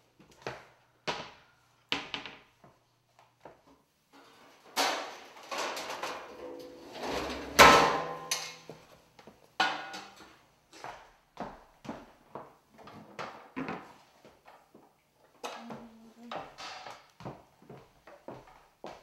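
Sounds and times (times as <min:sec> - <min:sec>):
pots and pans clattering: 0:04.2 - 0:08.7, 0:09.6 - 0:10.2.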